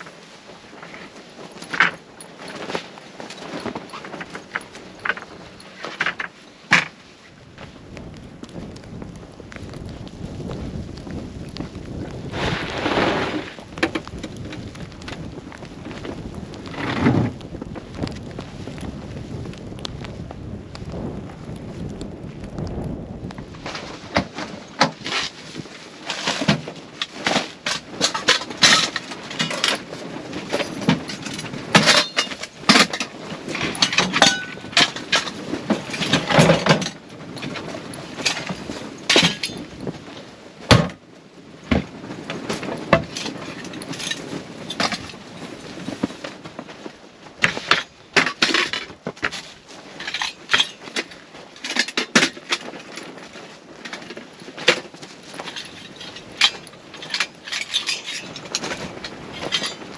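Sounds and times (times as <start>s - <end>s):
gear clinking and rattling: 0.8s - 7.0s, 26.0s - 39.8s, 47.4s - 59.9s.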